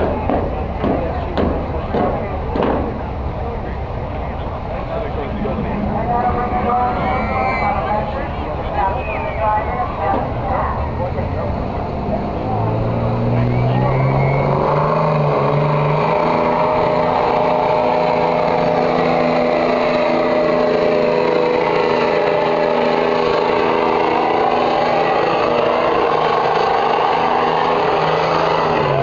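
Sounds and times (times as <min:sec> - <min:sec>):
pickup truck engine running hard: 0:09.4 - 0:29.0.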